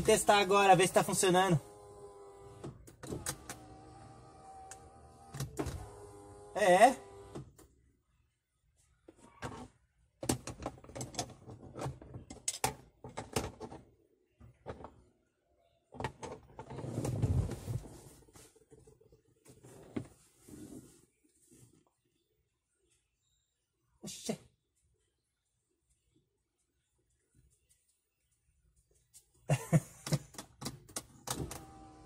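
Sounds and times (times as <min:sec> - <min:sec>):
power window motor running: 0:01.6 - 0:07.4, 0:31.4 - 0:32.0.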